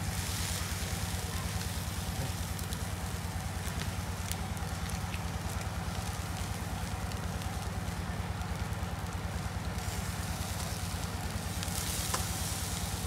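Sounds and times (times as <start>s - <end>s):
meat sizzling on grill: 0.0s - 13.0s.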